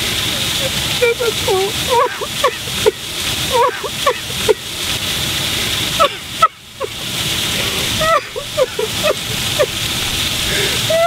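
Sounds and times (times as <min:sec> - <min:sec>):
rushing background hiss: 0:00.0 - 0:11.0
woman sobbing: 0:01.1 - 0:04.6, 0:07.8 - 0:09.8, 0:10.6 - 0:11.0.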